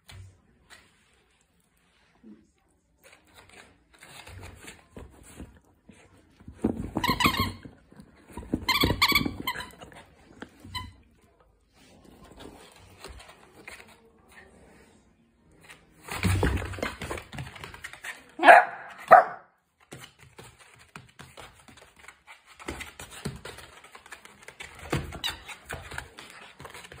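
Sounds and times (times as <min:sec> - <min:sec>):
dog scuffling with plush toy: 0:03.2 - 0:10.9, 0:19.8 - 0:27.0
dog barking: 0:18.4 - 0:19.6.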